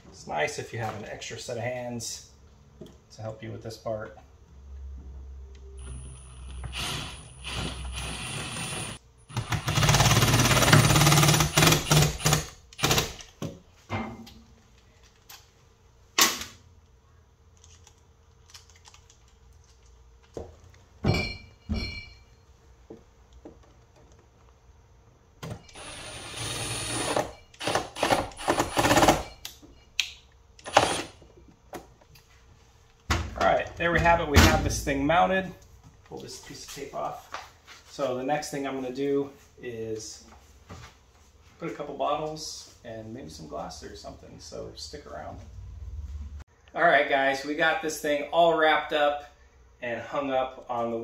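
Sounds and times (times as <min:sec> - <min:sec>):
cordless driver running screws: 0:25.7 - 0:29.1, 0:30.6 - 0:31.2.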